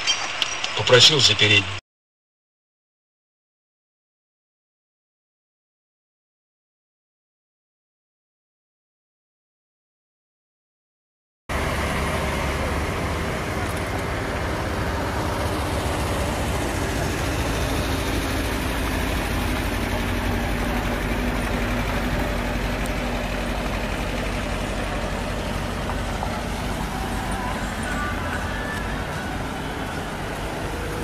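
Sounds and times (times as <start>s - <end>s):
vehicle engines idling: 11.5s - 31.0s.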